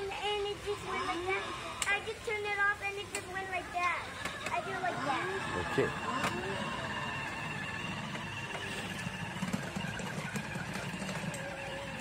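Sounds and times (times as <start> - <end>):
plastic wheels rolling on pebbles: 1.8 - 12.0
electric motor whirring: 4.1 - 12.0.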